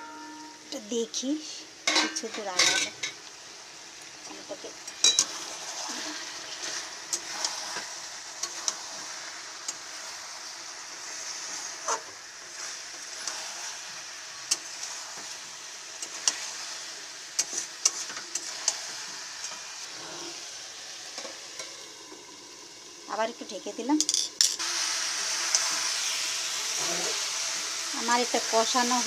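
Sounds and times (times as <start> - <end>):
chicken and potatoes sizzling in oil: 0.0 - 29.0
spatula scraping a pan: 5.0 - 10.2, 11.0 - 16.8.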